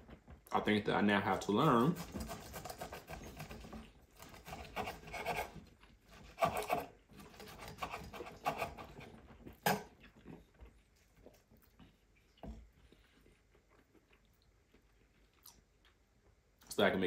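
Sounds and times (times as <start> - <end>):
knife sawing through meat crust: 1.4 - 9.1.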